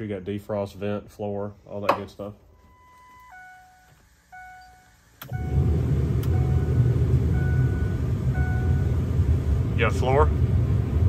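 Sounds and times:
truck warning chime: 2.5s - 9.0s
blower rushing air: 5.3s - 11.0s.

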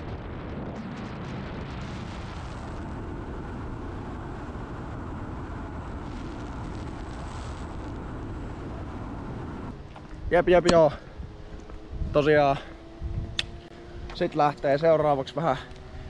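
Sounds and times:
wind through open windows: 0.0s - 16.0s
road noise inside moving car: 2.3s - 9.9s.

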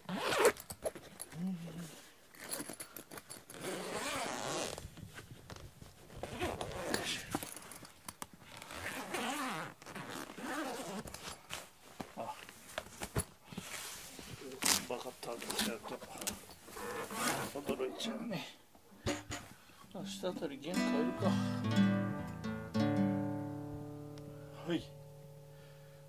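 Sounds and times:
zipper being pulled open: 0.0s - 0.8s, 1.8s - 4.8s, 6.2s - 7.4s, 8.4s - 11.6s, 16.7s - 17.7s
rustling: 0.2s - 18.0s.

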